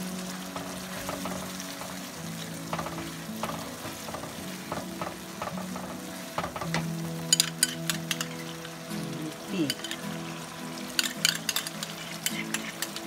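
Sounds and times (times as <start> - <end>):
curry sizzling in oil: 0.0 - 13.0
wooden spatula scraping pan: 0.5 - 6.9, 11.0 - 13.0.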